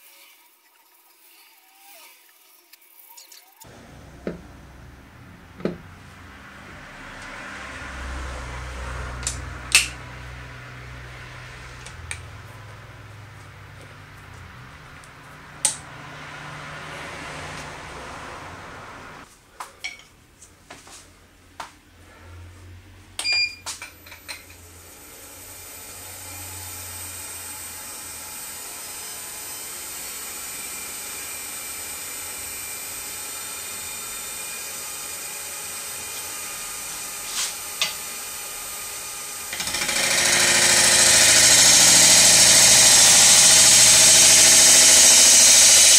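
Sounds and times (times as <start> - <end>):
turning tool cutting wood: 3.6 - 19.2, 25.2 - 45.9
wood lathe running: 3.7 - 19.2, 25.3 - 45.9.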